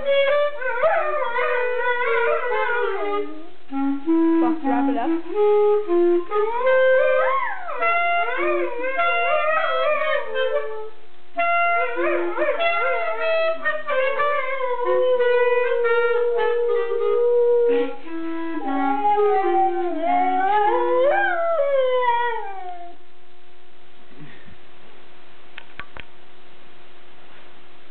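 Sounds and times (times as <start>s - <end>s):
clarinet playing held notes: 0.0s - 23.0s
dog howling: 0.1s - 3.5s, 18.6s - 23.0s.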